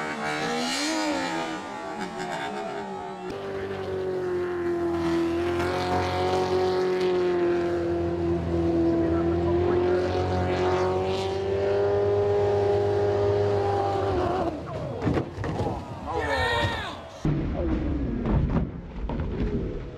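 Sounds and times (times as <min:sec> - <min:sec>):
boat engine running at high revs: 0:00.0 - 0:02.0, 0:02.9 - 0:15.0.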